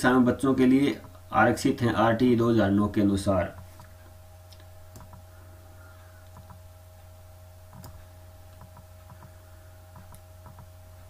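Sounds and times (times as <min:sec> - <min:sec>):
low electrical hum: 0:00.0 - 0:11.0
computer mouse clicks: 0:04.5 - 0:05.2, 0:06.2 - 0:06.6, 0:07.7 - 0:10.7.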